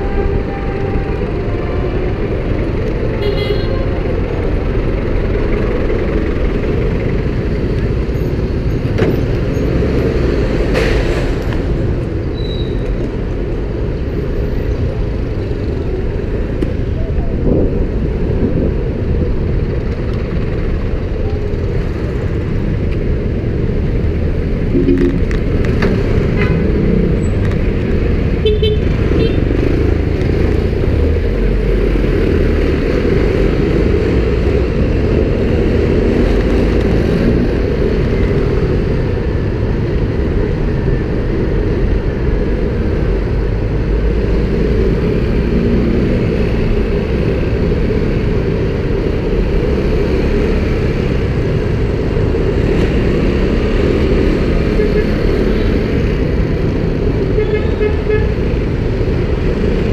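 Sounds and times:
street traffic: 0:00.0 - 0:59.9
wind and road noise rumble: 0:00.0 - 0:59.9
horn beep: 0:24.8 - 0:25.2.

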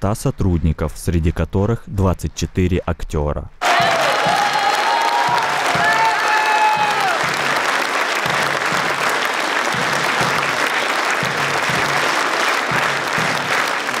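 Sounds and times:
audience applauding: 0:03.6 - 0:14.0.

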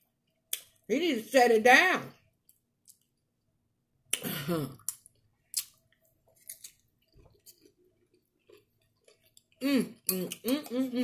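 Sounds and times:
person chewing chips: 0:04.8 - 0:11.0.

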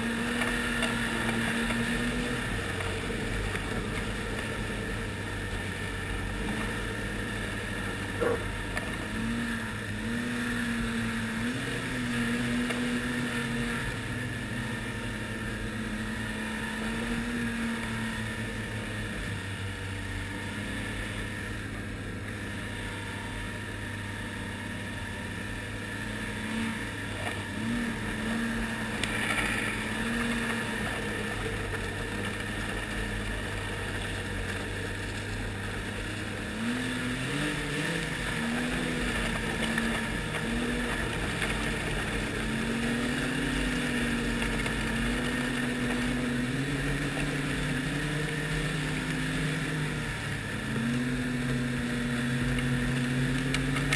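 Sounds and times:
snowmobile engine running: 0:00.0 - 0:53.9.

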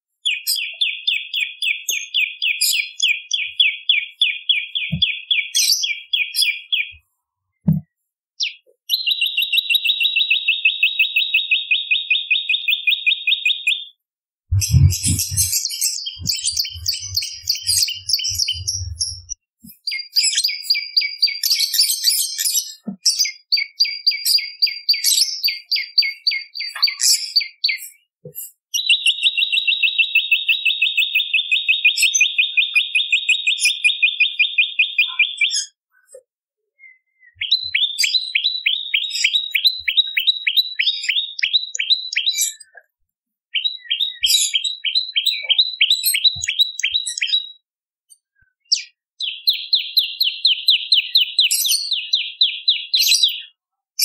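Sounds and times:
low thumps: 0:14.5 - 0:15.6, 0:16.2 - 0:19.4
bird trilling high notes: 0:14.6 - 0:19.4.

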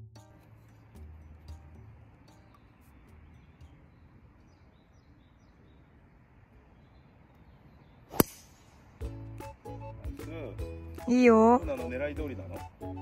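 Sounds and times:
quiet outdoor background: 0:00.0 - 0:13.0
golf driver striking ball: 0:08.1 - 0:08.9.

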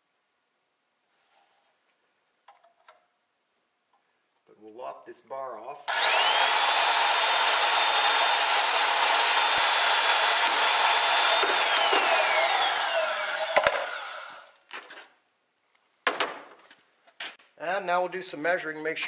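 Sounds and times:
band saw motor whine: 0:05.9 - 0:14.5.

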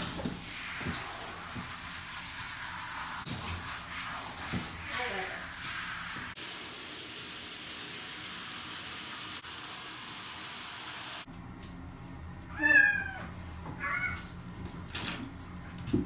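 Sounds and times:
running shower water: 0:00.0 - 0:11.3
cat meowing: 0:12.5 - 0:14.3.

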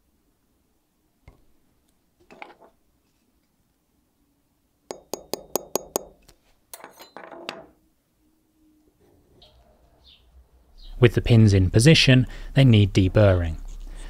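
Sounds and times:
hammer tapping metal punch: 0:04.9 - 0:06.2.

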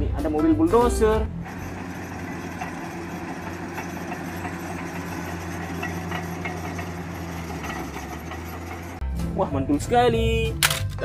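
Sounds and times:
bulldozer diesel engine running: 0:01.3 - 0:09.0.

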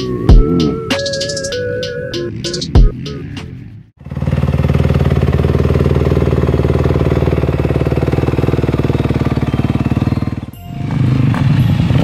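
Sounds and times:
dirt bike engine idling: 0:04.0 - 0:12.0.

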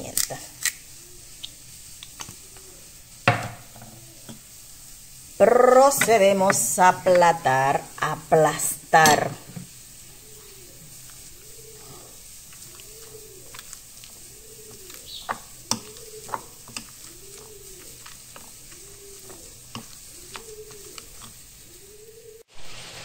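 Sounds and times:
bird calling: 0:09.0 - 0:22.5
potato masher squashing pumpkin: 0:10.4 - 0:21.5.

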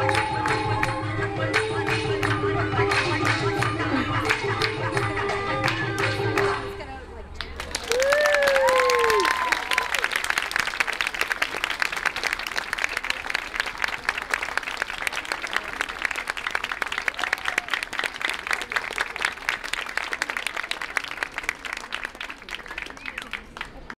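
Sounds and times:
audience applauding: 0:07.4 - 0:23.9.

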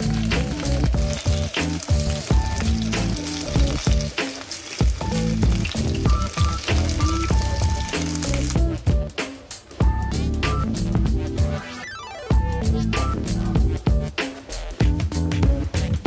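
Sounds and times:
sausages sizzling in a frying pan: 0:00.0 - 0:08.6
background music with a beat: 0:00.0 - 0:16.0.

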